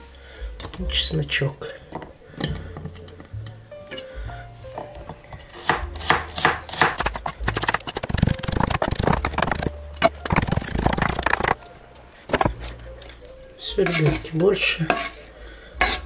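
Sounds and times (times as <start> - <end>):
knife chopping on wooden board: 5.6 - 7.9.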